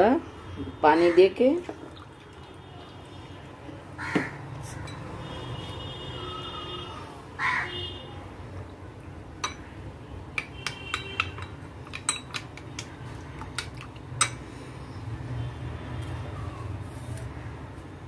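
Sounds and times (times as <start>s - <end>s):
spoon clinking against bowl: 4.8s - 5.1s, 9.4s - 9.7s, 10.4s - 14.4s.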